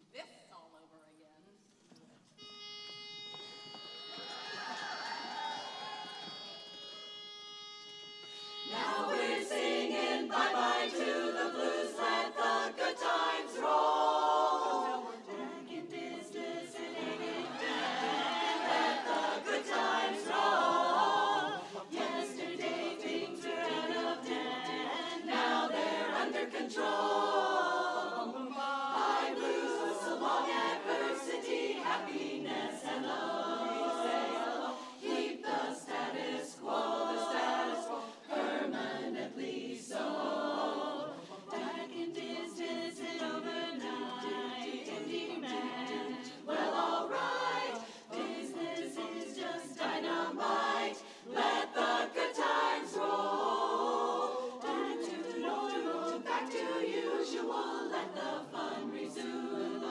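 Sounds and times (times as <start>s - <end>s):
women's chorus singing a cappella: 8.5s - 59.9s.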